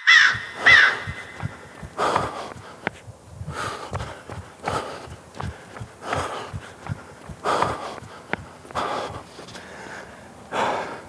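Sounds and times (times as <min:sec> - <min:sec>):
bird cawing: 0:00.0 - 0:02.8
running footsteps on asphalt: 0:00.1 - 0:10.9
runner gasping breathing: 0:00.3 - 0:11.0.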